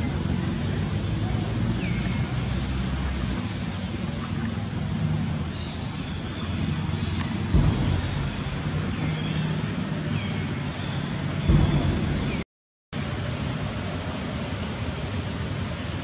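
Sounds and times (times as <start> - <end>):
low motor rumble: 1.8 - 12.4
dull knock: 7.5 - 9.0.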